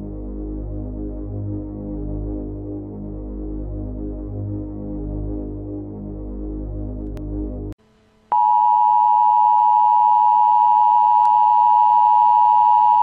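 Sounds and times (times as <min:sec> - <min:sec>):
low droning ambient music: 0:00.0 - 0:08.3
steady single-pitch test tone: 0:00.0 - 0:13.0.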